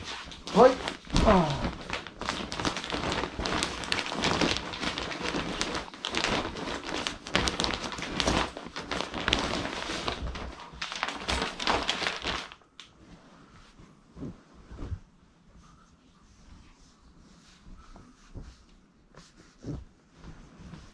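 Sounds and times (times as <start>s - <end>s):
plastic bag crinkling: 0.0s - 12.7s
clothes rustling: 0.0s - 20.9s.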